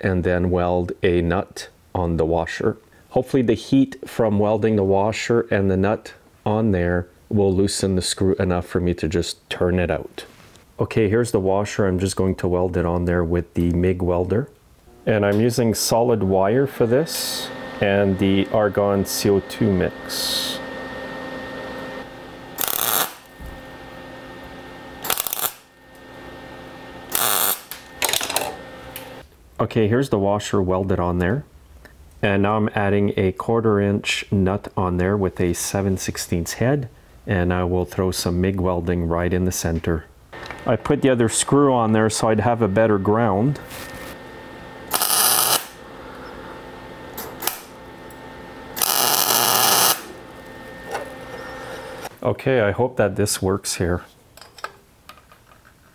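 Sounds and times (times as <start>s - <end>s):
steady hum: 9.9s - 29.3s, 29.9s - 55.2s
welder bursts: 16.6s - 23.7s, 24.9s - 26.1s, 27.0s - 29.2s, 44.8s - 52.1s
welding arc crackling: 22.5s - 23.3s, 25.0s - 26.0s, 27.1s - 29.2s, 44.8s - 45.9s, 47.2s - 48.1s, 48.8s - 51.2s.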